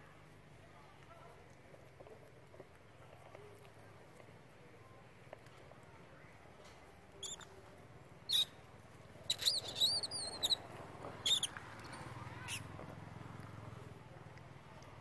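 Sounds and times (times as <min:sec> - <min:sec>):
monkey high-pitched squeaks: 0:07.2 - 0:07.5, 0:08.3 - 0:08.6, 0:09.3 - 0:12.7.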